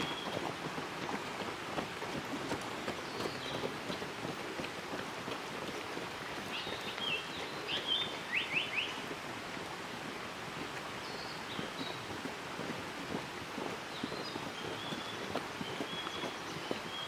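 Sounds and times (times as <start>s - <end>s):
bird whistling song: 6.5s - 9.0s.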